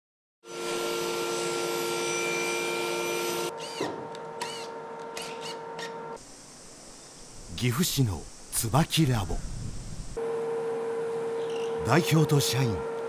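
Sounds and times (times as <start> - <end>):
table saw cutting wood: 0.4 - 6.2
power drill driving screw: 1.0 - 6.1.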